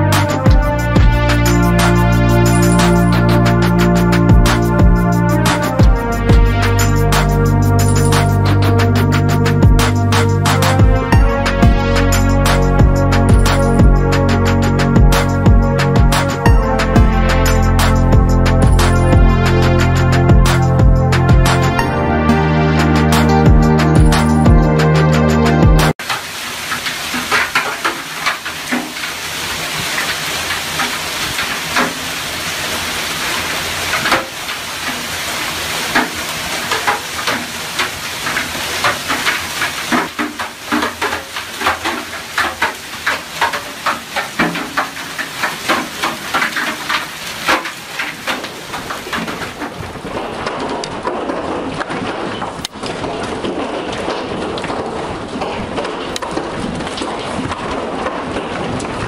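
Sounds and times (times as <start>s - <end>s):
hail splashing into pool: 0.0s - 22.0s, 25.9s - 59.0s
hailstones cracking on hard surfaces: 26.0s - 59.0s
hailstones hitting the ground: 26.0s - 59.0s.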